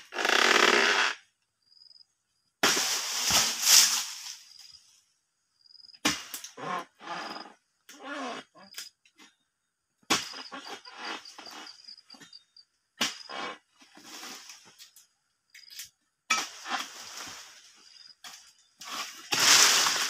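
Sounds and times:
leaves rustling: 2.6 - 4.8, 16.6 - 18.1, 18.8 - 20.0.

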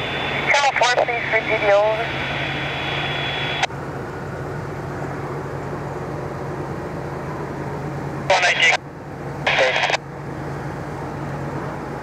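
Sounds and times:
low engine hum: 0.0 - 12.0.

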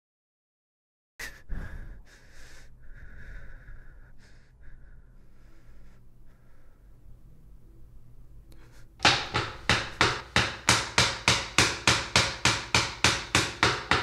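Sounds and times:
woman breathing heavily: 1.2 - 7.3, 8.5 - 10.4
faint low hum: 1.4 - 9.0.

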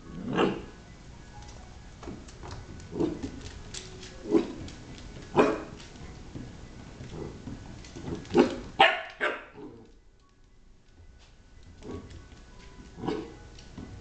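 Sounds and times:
puppy barking: 5.4 - 5.8, 8.3 - 9.8.

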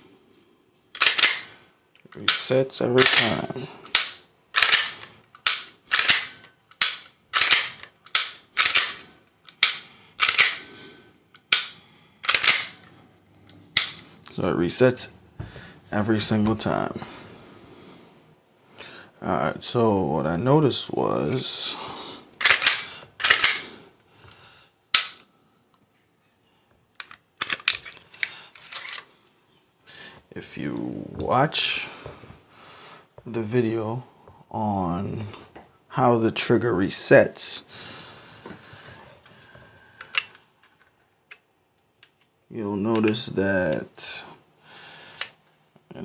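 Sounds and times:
pistol slide mechanical clacks: 0.9 - 1.6, 2.2 - 10.7, 11.3 - 13.0, 13.7 - 14.1, 22.4 - 23.8, 24.9 - 25.3.

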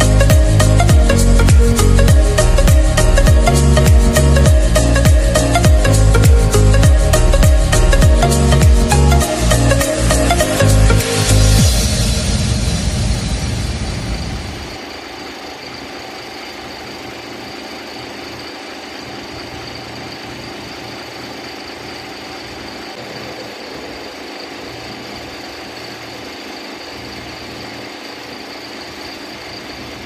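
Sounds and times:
engine idling: 0.0 - 15.1
faint high whine: 0.0 - 30.0.

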